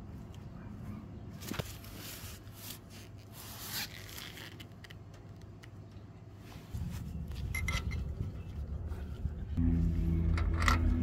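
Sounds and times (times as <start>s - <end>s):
low sound: 6.8s - 11.0s.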